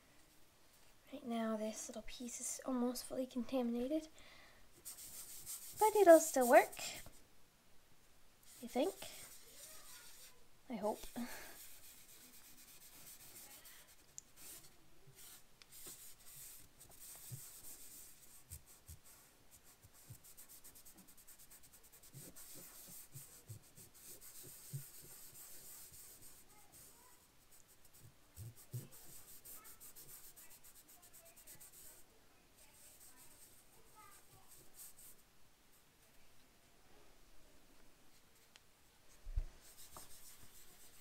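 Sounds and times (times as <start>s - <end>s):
fingertips rubbing pastel on paper: 4.8s - 7.1s, 8.5s - 32.0s, 32.6s - 35.2s, 39.6s - 41.0s.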